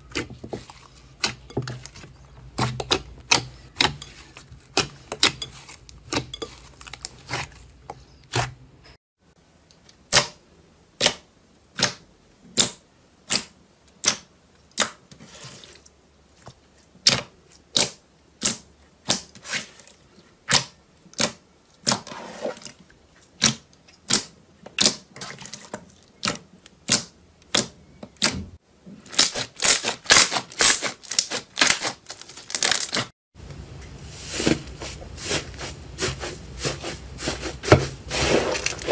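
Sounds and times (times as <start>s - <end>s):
slime crackling: 29.1s - 33.1s.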